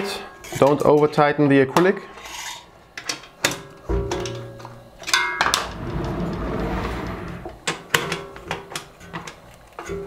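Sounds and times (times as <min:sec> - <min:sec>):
metal frame scraping on table: 0:05.5 - 0:07.6.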